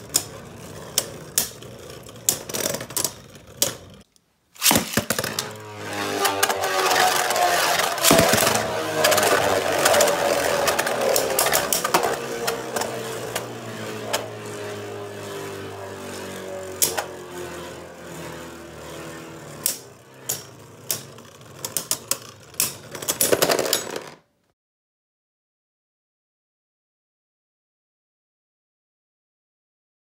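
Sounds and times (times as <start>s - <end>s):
spinning tops whirring: 4.6s - 24.2s.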